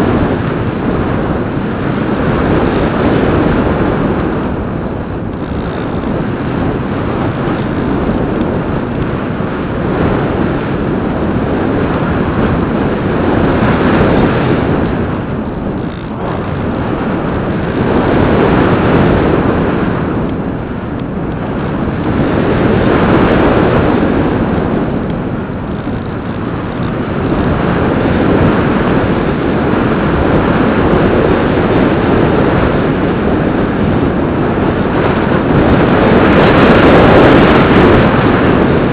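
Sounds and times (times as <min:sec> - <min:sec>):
rough rushing air in flight: 0:00.0 - 0:38.9.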